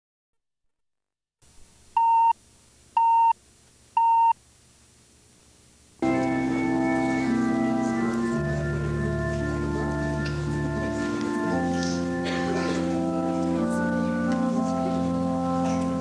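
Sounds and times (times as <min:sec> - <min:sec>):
short countdown beeps: 0:04.0 - 0:04.4
organ music sustained chords: 0:06.0 - 0:16.0.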